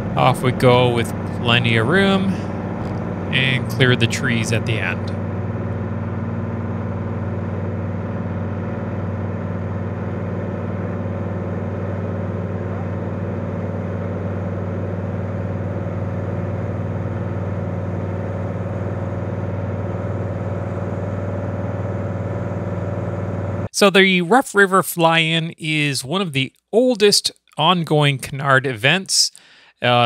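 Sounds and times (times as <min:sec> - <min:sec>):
aircraft engine and propeller drone: 0:00.0 - 0:23.8.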